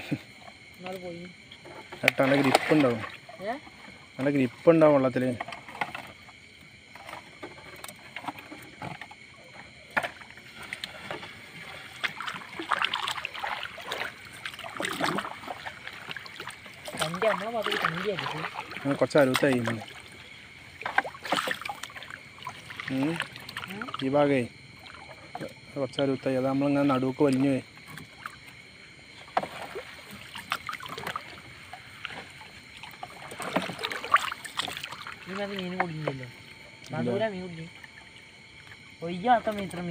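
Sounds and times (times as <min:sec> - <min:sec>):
water dripping and splashing: 0:00.5 - 0:04.4, 0:07.0 - 0:37.0.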